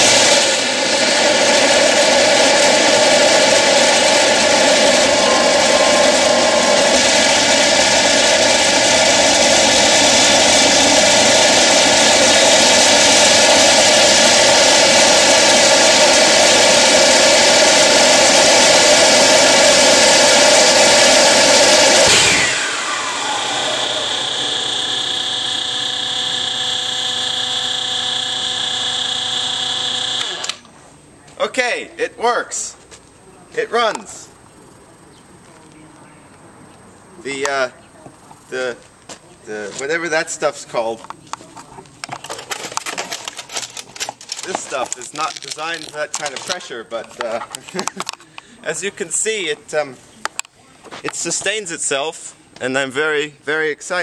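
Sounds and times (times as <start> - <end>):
leaf blower: 0.0 - 30.6, 42.6 - 46.6
turbojet engine running: 0.0 - 30.6
high engine whine: 0.0 - 30.8.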